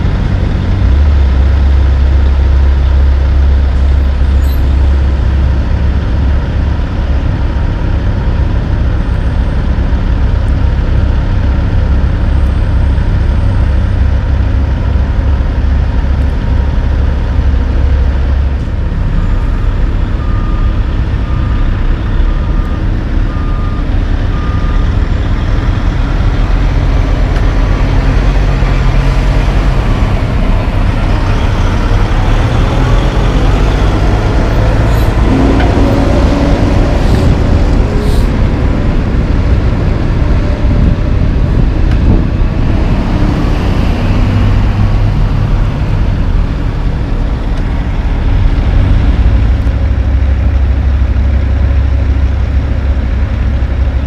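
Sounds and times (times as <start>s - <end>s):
diesel truck engines running: 0.0s - 54.0s
truck backup alarm beeping: 19.0s - 25.6s.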